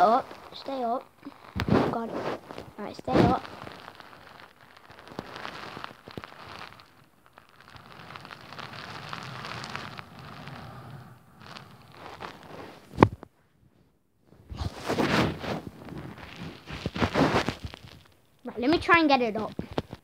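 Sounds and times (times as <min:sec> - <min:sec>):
phone rubbing against bedding: 0:01.3 - 0:04.4, 0:07.9 - 0:13.0, 0:14.5 - 0:17.6.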